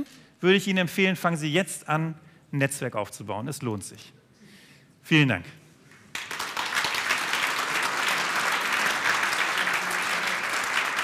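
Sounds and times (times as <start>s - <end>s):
audience applauding: 6.1s - 11.0s.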